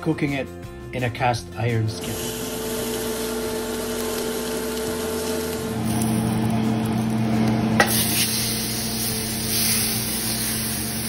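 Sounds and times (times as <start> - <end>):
steak sizzling in a skillet: 2.0 - 7.2, 7.8 - 11.0.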